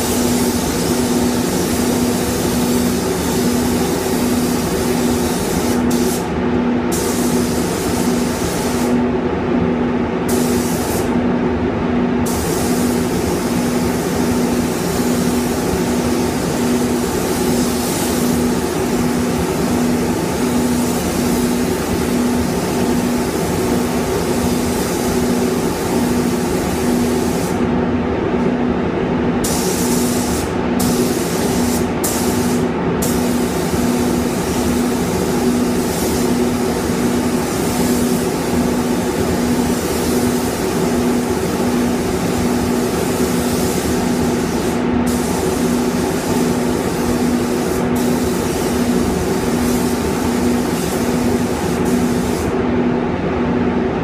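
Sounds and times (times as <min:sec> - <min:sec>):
paint spray gun hissing: 0:00.0 - 0:06.3, 0:06.9 - 0:09.0, 0:10.3 - 0:11.1, 0:12.3 - 0:27.6, 0:29.4 - 0:52.6.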